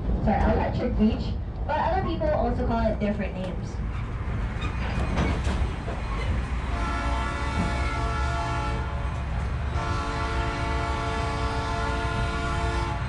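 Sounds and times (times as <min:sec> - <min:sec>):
train cars rumbling on rails: 0:00.0 - 0:13.0
locomotive horn blast: 0:06.6 - 0:13.0.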